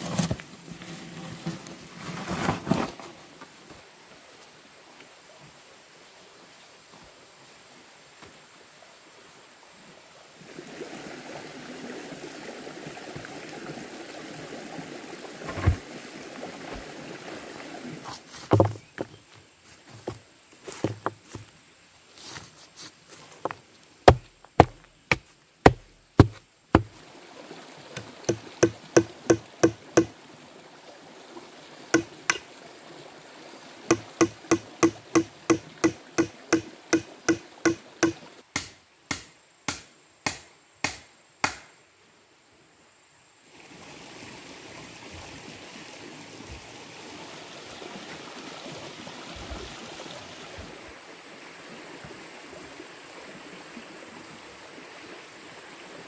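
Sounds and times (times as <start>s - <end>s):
machete chopping wood: 18.5s - 18.8s, 24.1s - 27.0s, 28.0s - 30.1s, 32.0s - 32.4s, 33.9s - 41.8s.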